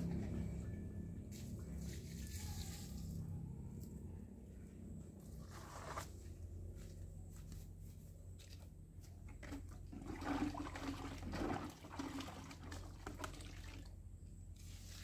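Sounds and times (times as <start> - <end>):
liquid pouring into bucket: 9.3 - 14.0.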